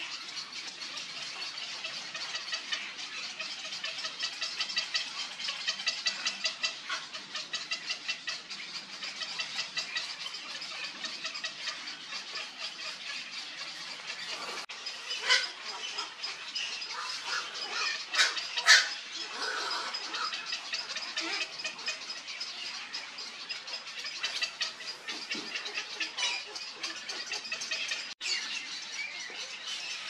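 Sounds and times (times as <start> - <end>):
loud harsh heron squawks: 16.9 - 20.5.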